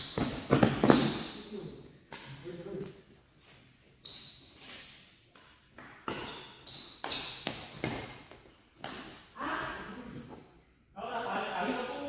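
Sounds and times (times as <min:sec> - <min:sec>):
rackets hitting shuttlecock: 0:00.0 - 0:01.3, 0:05.3 - 0:09.3.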